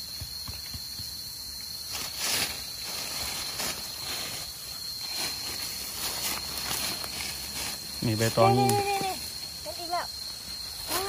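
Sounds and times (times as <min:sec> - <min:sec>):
crickets droning: 0:00.0 - 0:11.0
digging through dry leaves and soil: 0:01.8 - 0:11.0.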